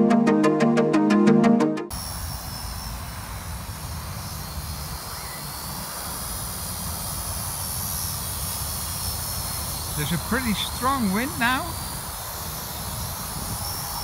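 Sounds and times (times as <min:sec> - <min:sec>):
electronic music: 0:00.0 - 0:01.9
drone propeller whine: 0:01.9 - 0:14.0
wind rumbling on microphone: 0:11.7 - 0:14.0.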